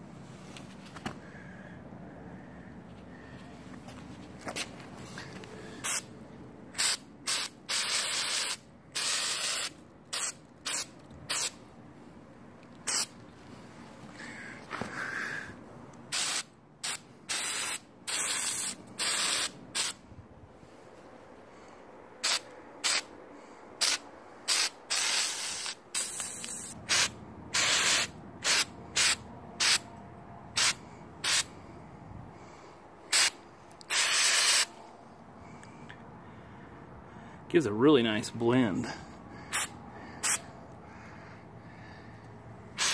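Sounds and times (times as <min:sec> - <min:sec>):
aerosol spray paint bursts: 0:05.8 - 0:06.1, 0:06.8 - 0:11.6, 0:12.9 - 0:13.2, 0:16.1 - 0:20.0, 0:22.2 - 0:23.1, 0:23.8 - 0:29.8, 0:30.6 - 0:31.5, 0:33.1 - 0:34.7, 0:39.5 - 0:40.4.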